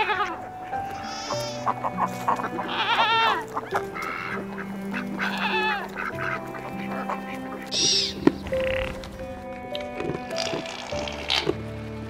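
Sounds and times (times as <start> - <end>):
goats bleating: 0.0 - 9.0
soft instrumental music: 0.0 - 12.0.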